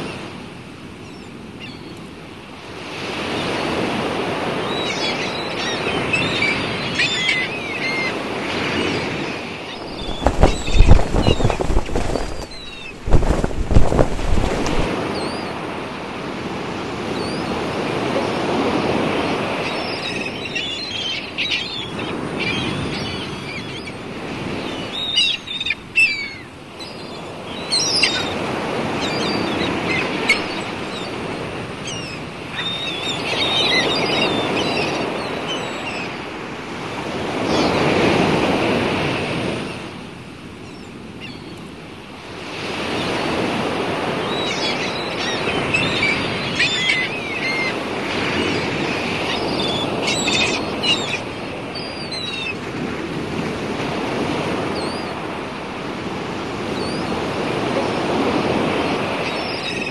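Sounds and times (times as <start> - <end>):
birds chirping: 4.6 - 15.6, 18.8 - 36.2, 44.1 - 52.6
sea waves washing in: 8.1 - 20.5, 42.0 - 59.9.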